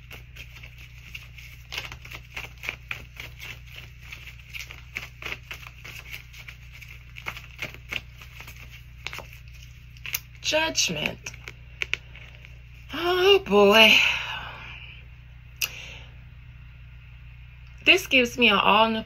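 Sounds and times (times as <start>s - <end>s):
cards shuffling: 0.0s - 12.6s.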